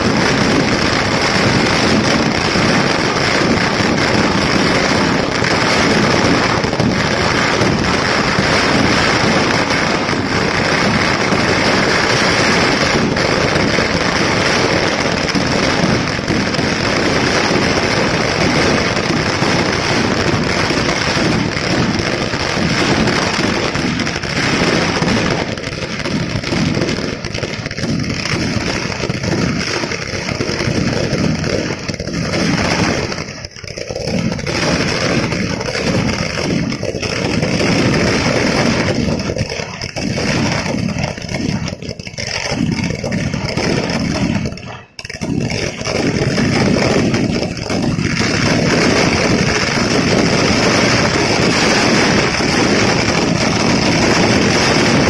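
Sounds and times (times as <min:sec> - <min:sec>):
firecrackers crackling: 0:00.0 - 0:55.0.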